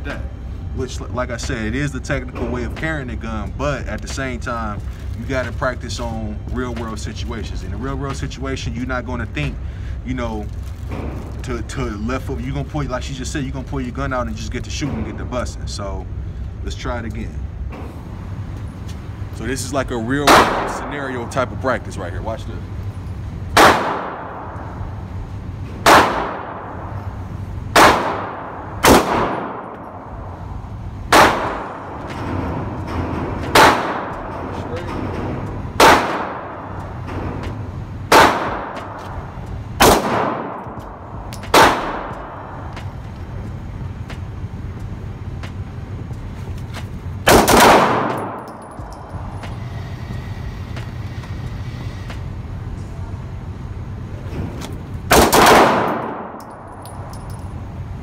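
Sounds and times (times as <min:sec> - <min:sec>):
steady low hum: 0:00.0 - 0:58.0
pistol shots echoing indoors: 0:20.2 - 0:20.9, 0:23.6 - 0:24.8, 0:25.8 - 0:30.3, 0:31.1 - 0:36.8, 0:38.1 - 0:39.1, 0:39.8 - 0:42.6, 0:47.3 - 0:48.8, 0:55.1 - 0:56.6.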